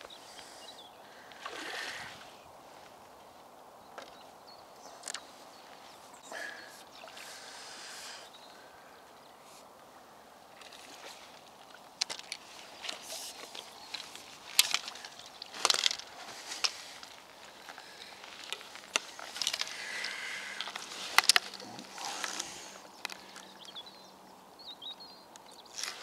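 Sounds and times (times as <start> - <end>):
fishing gear knocks and clicks: 10.6 - 23.2.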